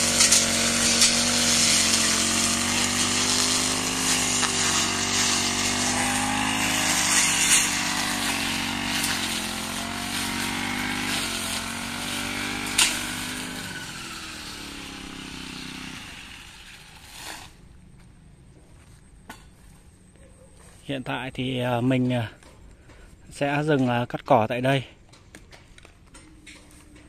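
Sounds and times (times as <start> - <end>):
brush cutter engine running: 0.0 - 17.0.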